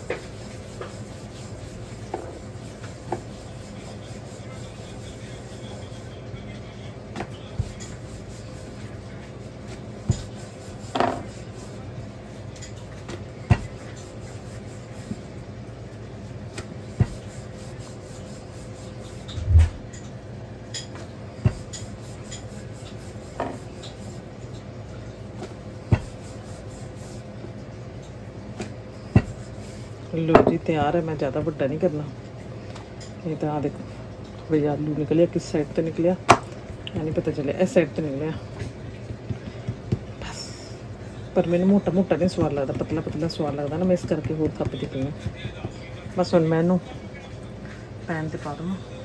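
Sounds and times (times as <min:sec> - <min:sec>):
rolling pin rubbing over dough: 0:00.0 - 0:19.4, 0:21.4 - 0:24.3, 0:25.4 - 0:27.3, 0:28.6 - 0:31.6, 0:41.0 - 0:47.0
steady low hum: 0:00.0 - 0:49.0
rolling pin knocking on countertop: 0:10.0 - 0:11.4, 0:13.5 - 0:13.8, 0:23.4 - 0:23.6, 0:25.9 - 0:26.2, 0:29.1 - 0:29.4, 0:30.3 - 0:30.9, 0:36.3 - 0:37.2, 0:42.3 - 0:45.8.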